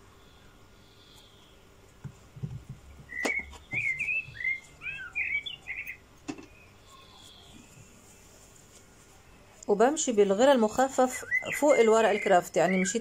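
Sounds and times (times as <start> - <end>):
small bird chirping: 0.2 - 1.6, 2.8 - 8.5, 10.1 - 13.0
cardboard box knocks and clicks: 2.0 - 3.9.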